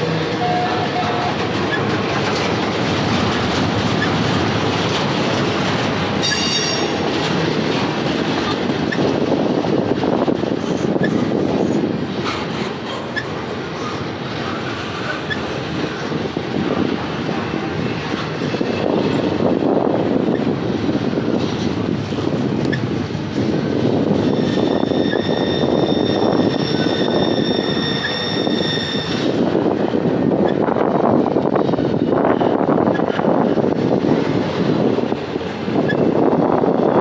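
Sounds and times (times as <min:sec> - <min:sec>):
steel train wheels rumbling on rails: 0:00.0 - 0:37.0
high-pitched wheel squeal: 0:06.2 - 0:07.1, 0:24.2 - 0:29.3.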